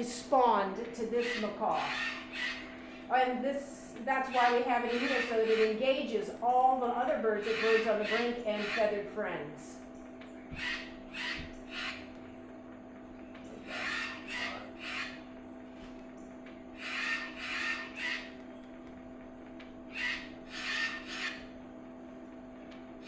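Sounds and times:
steady hum: 0.0s - 23.0s
macaw squawks from phone speaker: 1.2s - 2.7s, 4.2s - 5.8s, 7.4s - 9.0s, 10.6s - 12.1s, 13.6s - 15.2s, 16.8s - 18.4s, 19.9s - 21.5s.

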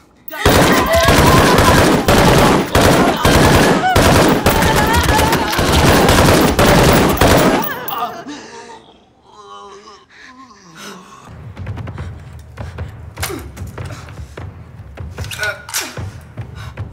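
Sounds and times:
woman screaming: 0.3s - 6.1s
handgun firing rapidly: 0.3s - 8.1s.

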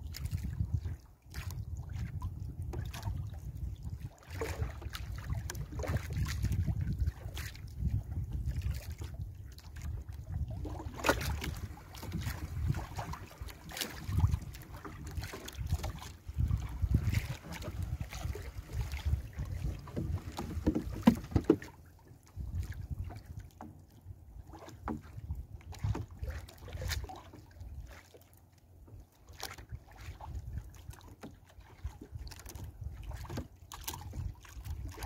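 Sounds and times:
wind rumble on microphone: 0.0s - 27.9s, 28.9s - 35.0s
knocks on wooden boat: 19.7s - 21.8s.

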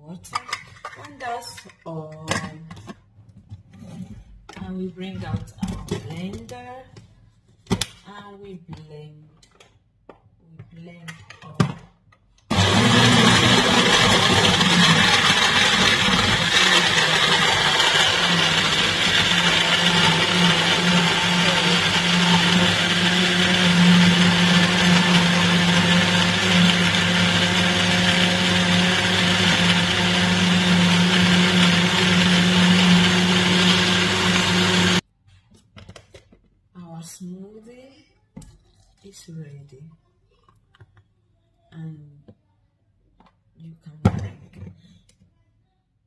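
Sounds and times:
blender motor whirring: 12.5s - 35.0s.

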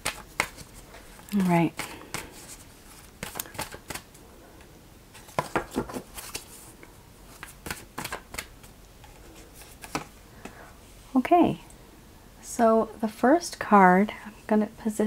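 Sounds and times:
cards being shuffled: 0.0s - 4.1s, 5.2s - 10.1s.

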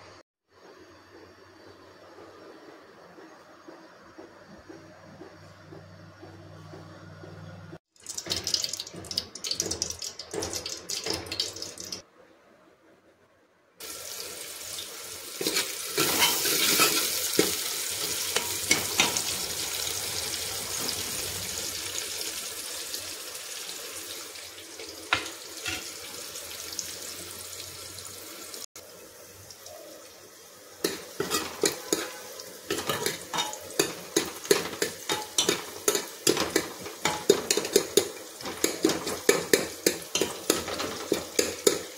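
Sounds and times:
onions sizzling in hot oil: 13.8s - 41.9s
spoon scraping pot: 15.4s - 17.6s.

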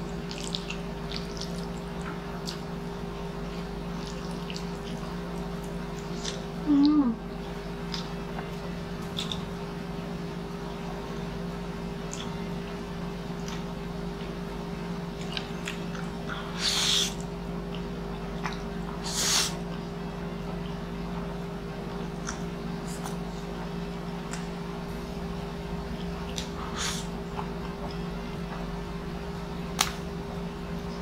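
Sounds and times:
soft wet chewing: 0.0s - 9.5s, 12.0s - 12.5s, 13.4s - 13.7s, 15.2s - 19.9s, 21.8s - 23.6s, 25.9s - 28.8s
steady low hum: 0.0s - 31.0s.

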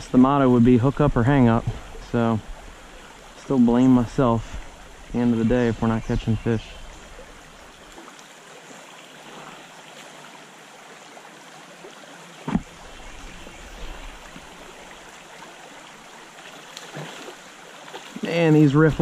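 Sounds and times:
stream running over rocks: 0.0s - 19.0s
brief thump: 12.4s - 12.7s.

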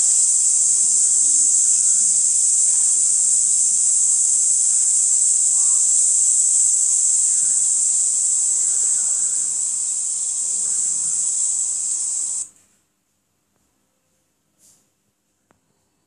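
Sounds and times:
high-pitched insect chorus: 0.0s - 12.5s.

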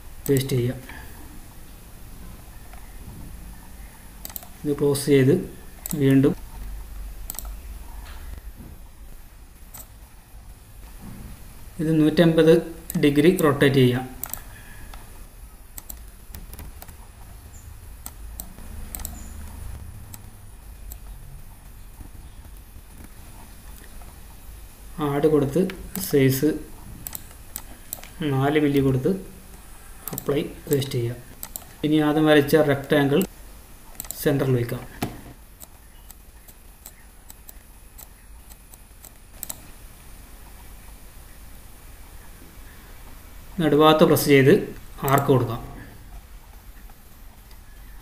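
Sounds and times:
low steady hum: 0.0s - 48.0s
computer mouse clicking: 4.2s - 4.6s, 5.8s - 7.6s, 9.7s - 10.0s, 14.2s - 15.1s, 15.7s - 21.2s, 27.0s - 28.8s, 29.5s - 31.8s, 33.9s - 34.2s, 35.0s - 39.7s, 45.0s - 45.3s.

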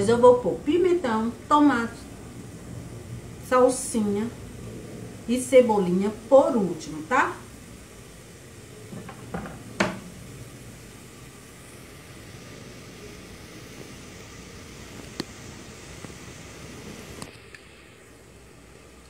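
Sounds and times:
onions and beef frying hiss: 0.0s - 19.0s
cutting board knock on counter: 9.0s - 10.0s.

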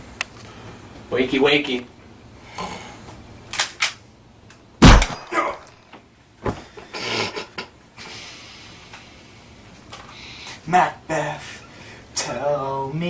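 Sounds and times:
loud sharp bang: 4.8s - 5.6s.

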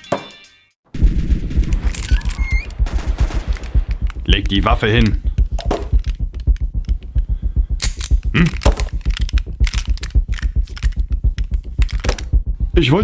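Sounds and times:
fast low pulse: 1.0s - 13.0s
handguns clicking and clattering: 3.3s - 7.2s, 7.8s - 12.3s.

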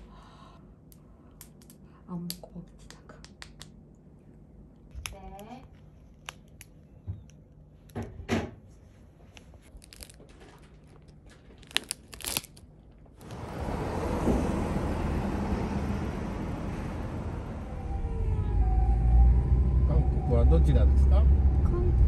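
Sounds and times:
snack pouch crinkling and tearing: 9.7s - 13.2s
city street noise: 13.2s - 22.0s.

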